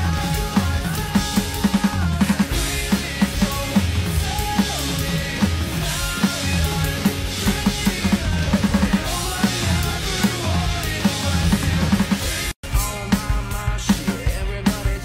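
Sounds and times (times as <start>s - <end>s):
electronic drum kit beat: 0.0s - 15.0s
pop-punk song: 0.0s - 15.0s.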